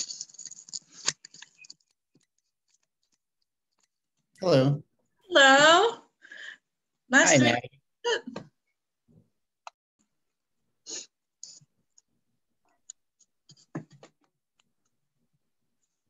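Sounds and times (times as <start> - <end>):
person speaking: 7.1 - 7.7.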